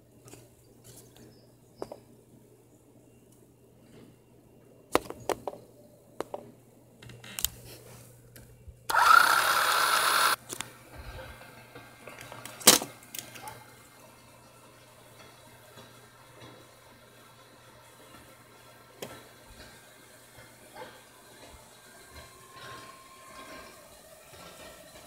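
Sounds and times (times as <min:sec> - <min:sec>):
toy track booster motor whirring: 0:08.9 - 0:10.4
toy cars and track clicking: 0:08.9 - 0:10.7.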